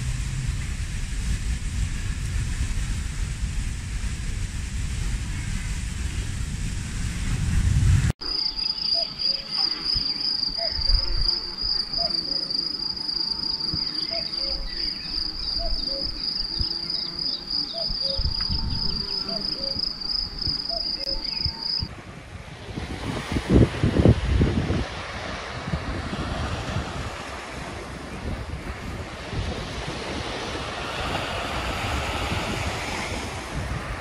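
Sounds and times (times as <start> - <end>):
soft surf: 0.0 - 34.0
insects trilling: 8.2 - 21.9
faint bird calls: 8.4 - 21.8.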